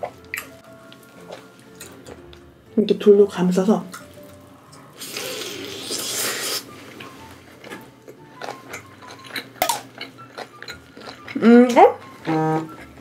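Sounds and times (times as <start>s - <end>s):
biting and chewing: 7.5s - 13.0s
wet chewing clicks: 7.6s - 13.0s.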